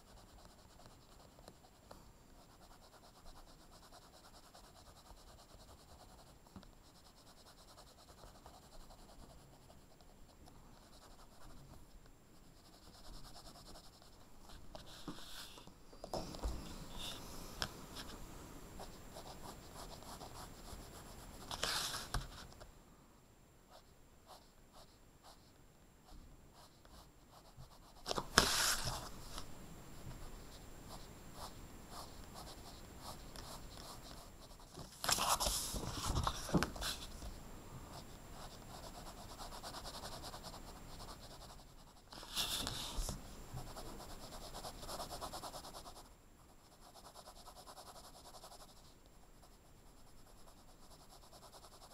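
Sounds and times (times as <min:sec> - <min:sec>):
pencil scratching on paper: 0:00.0 - 0:10.1, 0:10.7 - 0:11.8, 0:12.4 - 0:17.2, 0:18.8 - 0:22.5, 0:30.1 - 0:37.2, 0:37.9 - 0:51.9.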